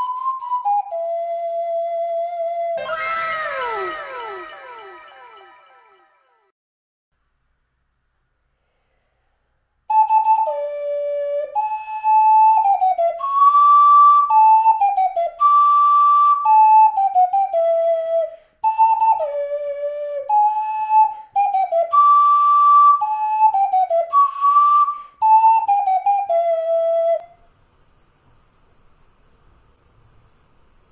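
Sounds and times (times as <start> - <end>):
ocarina melody: 0.0 - 6.5, 9.9 - 27.4
breath noise: 8.4 - 9.6, 18.3 - 18.6, 24.9 - 25.2.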